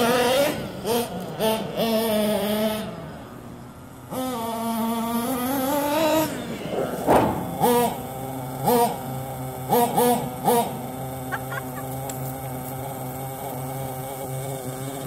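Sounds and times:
small nitro engine revving: 0.0 - 15.0
loud thump: 6.7 - 8.1.

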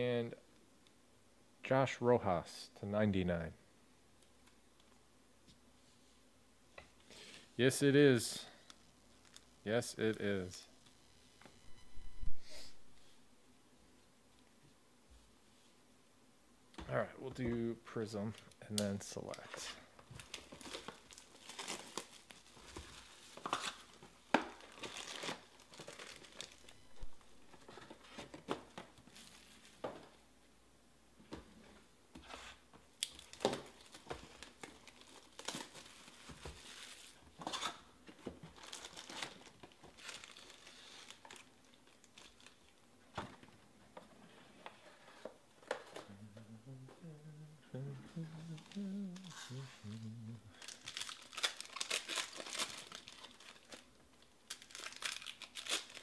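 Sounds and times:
foil packs crinkling: 19.5 - 26.7, 33.0 - 37.8, 38.4 - 42.8, 50.5 - 56.0.

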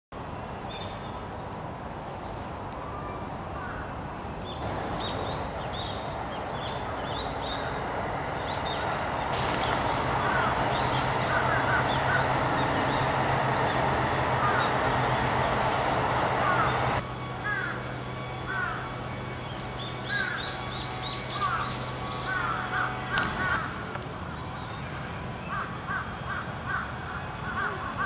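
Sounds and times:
small birds chirping: 2.2 - 17.0
outdoor hiss: 3.6 - 17.7, 20.2 - 27.8.

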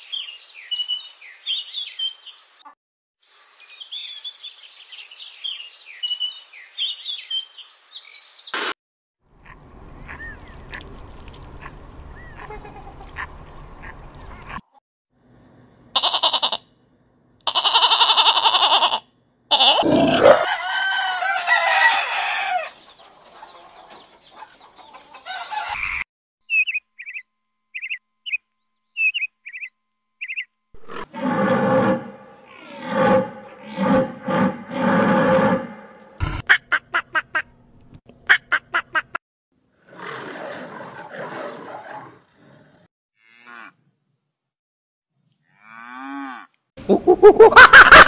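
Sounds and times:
animal repeated pitched calls: 17.5 - 20.5
chickens crowing calls: 19.5 - 26.0, 31.0 - 36.3, 47.0 - 48.0
chick peeps: 22.8 - 26.0.

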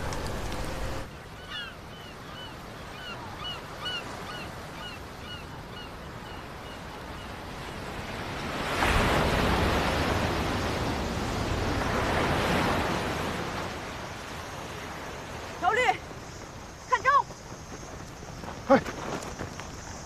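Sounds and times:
sea surf: 0.0 - 17.2
wind: 0.0 - 20.0
waves crashing against rocks: 7.3 - 17.2.

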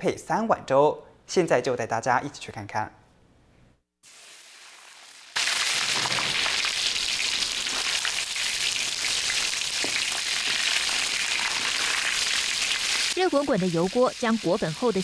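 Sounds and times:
deep-frying sizzle: 4.0 - 15.0.

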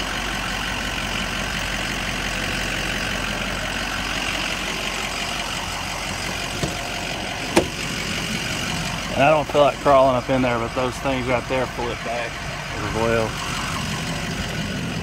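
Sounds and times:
diesel engine idling: 0.0 - 15.0
car door click: 6.5 - 6.9, 7.5 - 7.8.

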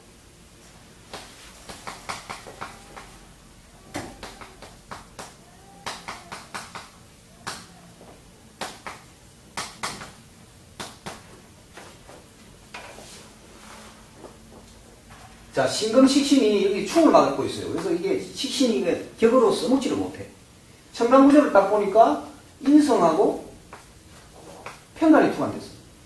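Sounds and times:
chalk tapping and scratching: 1.1 - 3.2.

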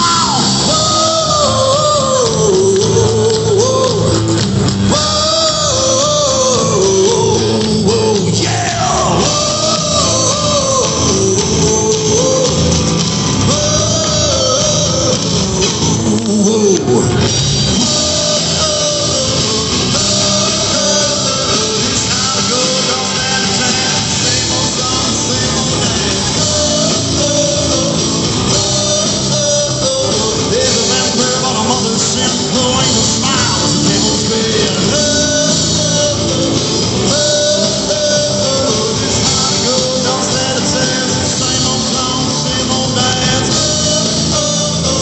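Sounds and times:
live rock band playing: 0.0 - 45.0.

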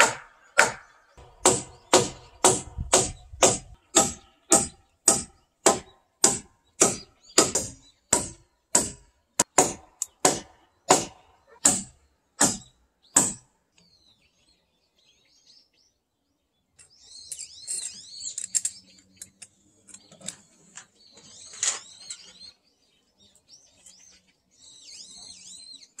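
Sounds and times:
hammer blows on wood: 0.0 - 13.4
birds chirping: 0.0 - 26.0.

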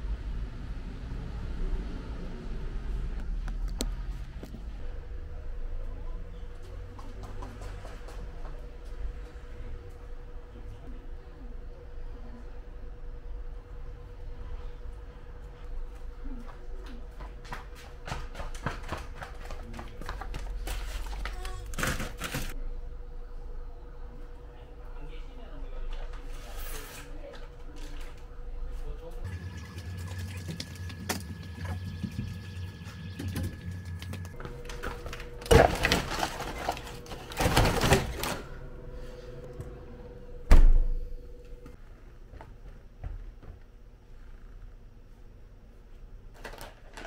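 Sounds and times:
refrigerator glass door thump: 40.5 - 40.9.

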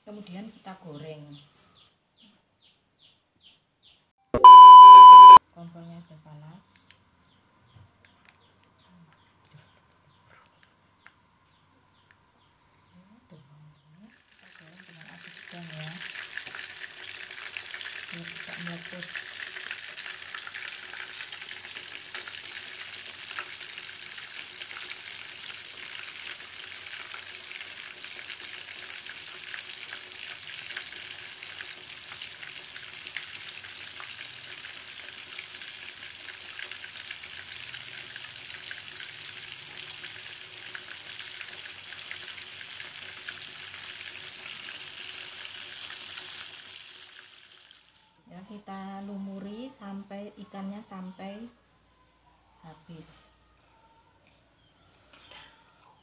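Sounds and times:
fish frying in hot oil: 14.1 - 48.0.

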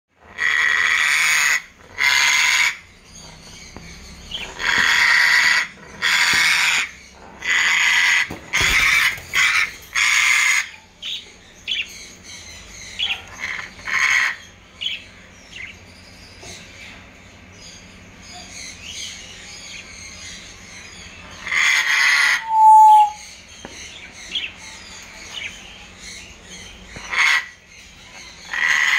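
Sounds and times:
parrot screeching: 0.3 - 2.9, 4.4 - 10.8, 13.3 - 14.4, 21.4 - 23.2, 27.0 - 27.6, 28.5 - 28.9
parrot chirping: 21.4 - 23.2.

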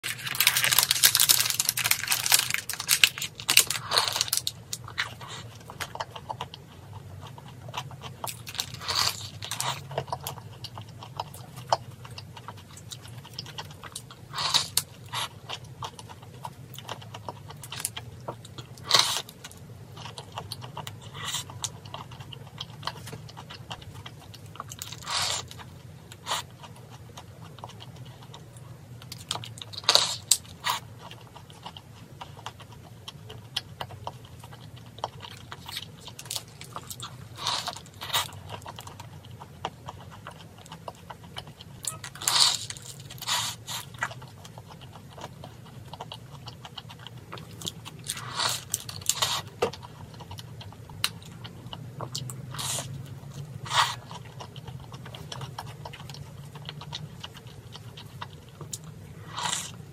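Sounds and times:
paper wrapper crinkling: 0.0 - 4.6
crunchy pastry bitten and chewed: 0.0 - 59.9.

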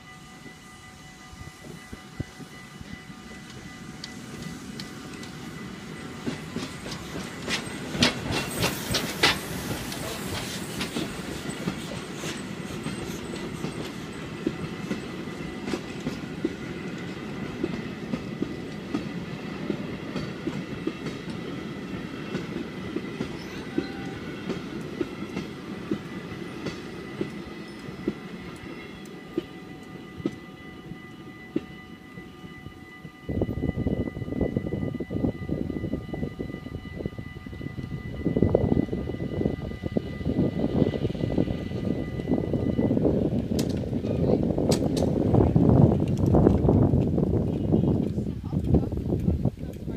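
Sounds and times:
level crossing warning bells: 0.0 - 7.9, 13.2 - 43.3
train rumble: 0.0 - 49.9
train wheels clacking on rail joints: 1.6 - 30.5, 43.3 - 49.9.

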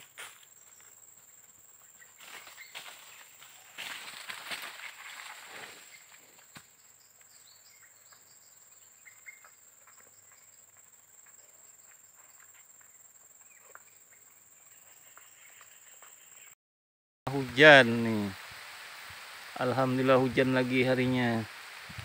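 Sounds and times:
faint bird chirps: 5.6 - 16.6.

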